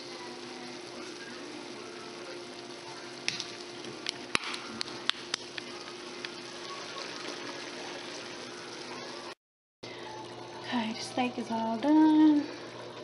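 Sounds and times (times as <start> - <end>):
beef sizzling in a pan: 0.0 - 9.4.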